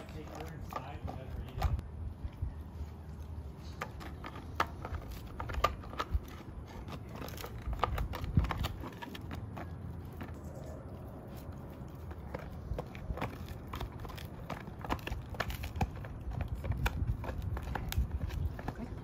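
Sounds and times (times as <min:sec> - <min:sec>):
dog gnawing a hard chew: 0:00.0 - 0:19.0.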